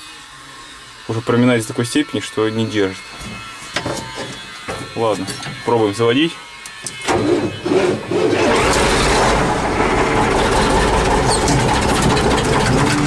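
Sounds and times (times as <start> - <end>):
diesel engine starter cranking: 7.0 - 13.0
diesel engine running loudly: 7.9 - 13.0.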